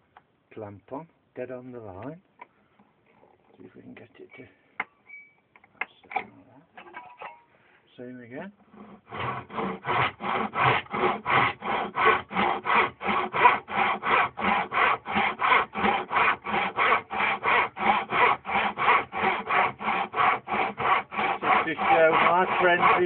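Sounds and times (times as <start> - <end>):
hand saw cutting: 8.7 - 23.0.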